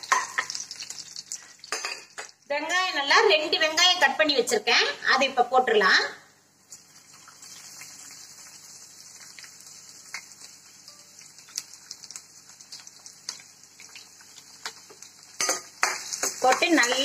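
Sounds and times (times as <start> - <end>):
oil crackles and pops: 0.0 - 2.5, 6.6 - 17.0
onions sizzling in oil: 0.0 - 3.1, 6.5 - 17.0.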